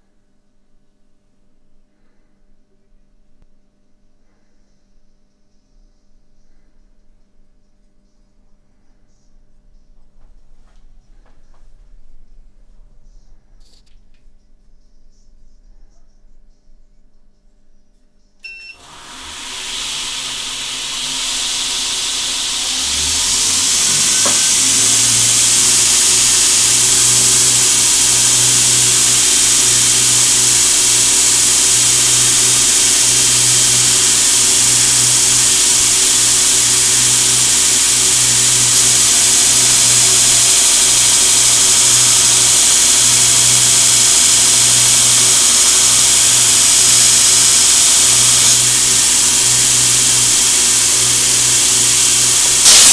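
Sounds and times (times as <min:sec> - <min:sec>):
belt grinder hissing: 0:18.8 - 0:52.9
grinder motor hum: 0:18.8 - 0:52.9.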